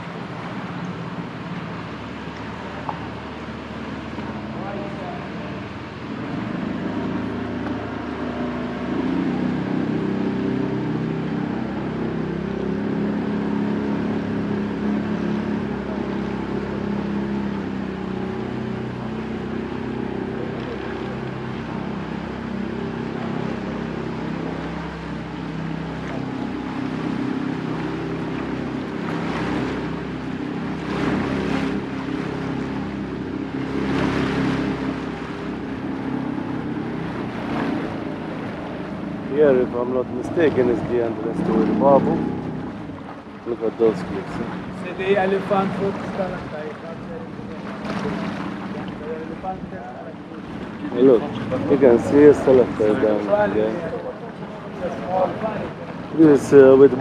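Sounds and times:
boat engine droning: 0:00.0 - 0:57.0
water splashing along hull: 0:00.0 - 0:57.0.

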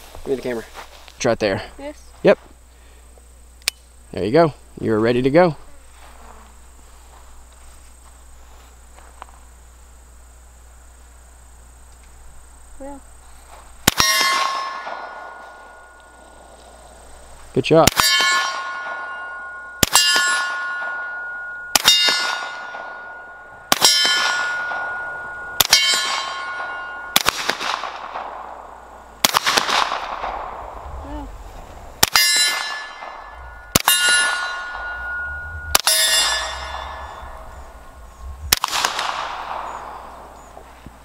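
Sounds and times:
suppressed gunshots: 0:13.8 - 0:15.4, 0:25.6 - 0:28.6, 0:29.2 - 0:30.8, 0:38.5 - 0:40.4
steel target clanging: 0:13.9 - 0:16.0, 0:17.9 - 0:28.4, 0:32.0 - 0:40.2.

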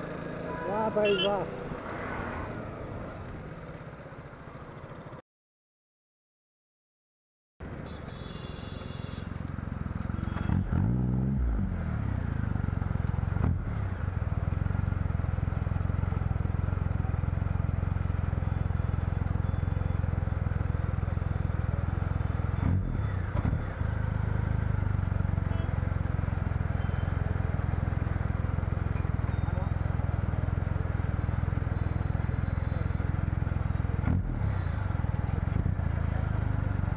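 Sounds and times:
motorcycle engine idling: 0:13.9 - 0:36.9.

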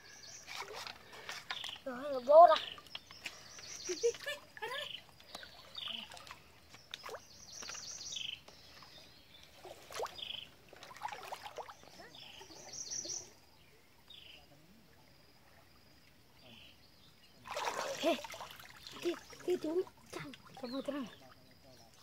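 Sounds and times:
creek water splashing: 0:00.0 - 0:13.7, 0:17.1 - 0:22.0
birds calling: 0:00.0 - 0:14.5.

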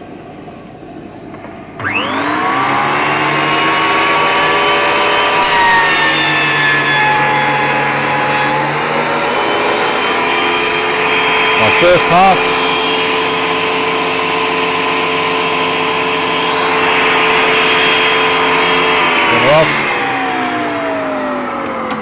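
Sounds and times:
thickness planer motor whine: 0:01.4 - 0:22.0.

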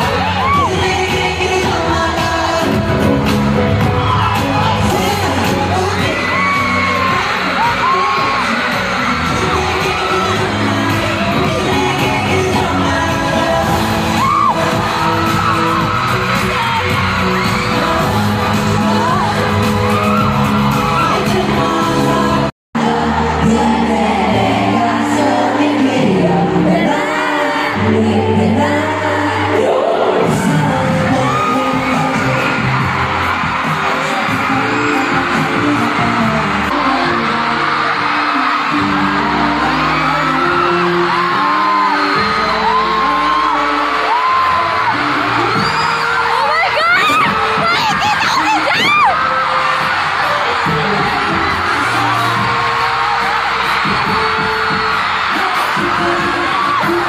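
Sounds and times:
crowd whooping: 0:00.0 - 0:01.0, 0:03.8 - 0:12.6, 0:13.6 - 0:21.8, 0:29.6 - 0:57.0
pop music with singing: 0:00.0 - 0:57.0.

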